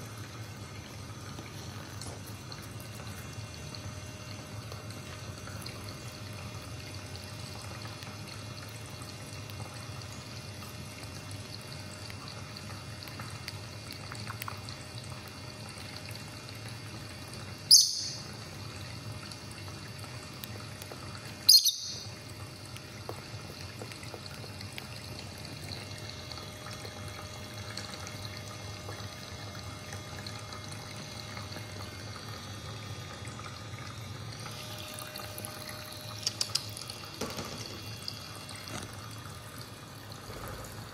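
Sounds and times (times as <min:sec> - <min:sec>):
bird chirps: 0:17.7 - 0:18.2, 0:21.5 - 0:22.0.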